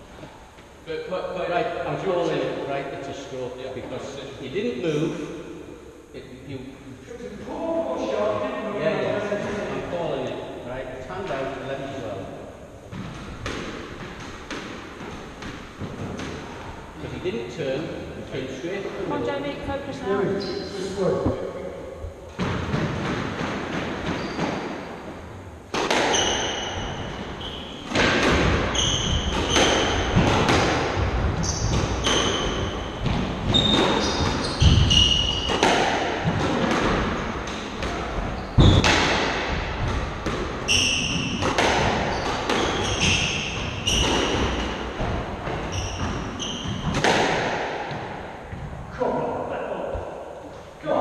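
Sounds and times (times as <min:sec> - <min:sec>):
shoes squeaking on wooden floor: 0:23.6 - 0:24.8, 0:25.8 - 0:35.8, 0:37.8 - 0:39.0, 0:40.6 - 0:47.2
squash ball cracking off rackets: 0:25.7 - 0:26.8, 0:27.8 - 0:48.2.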